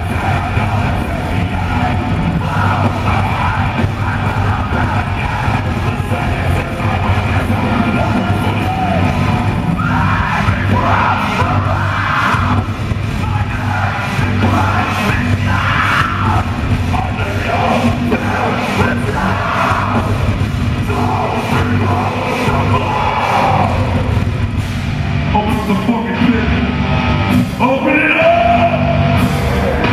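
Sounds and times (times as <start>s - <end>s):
heavy metal band playing live: 0.0s - 29.9s
yelled vocals: 0.0s - 29.9s.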